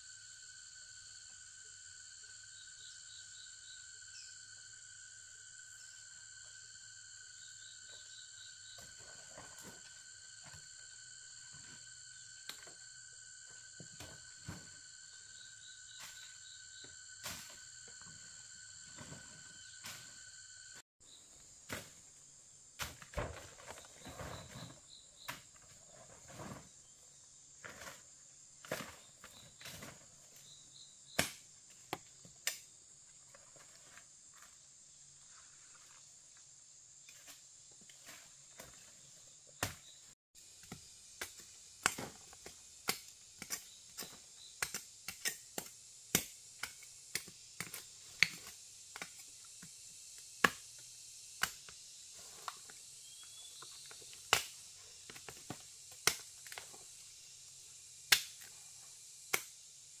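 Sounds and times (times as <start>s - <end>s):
forest insects droning: 0.0s - 60.0s
sharp snaps and cracks: 54.2s - 54.6s, 58.1s - 58.5s.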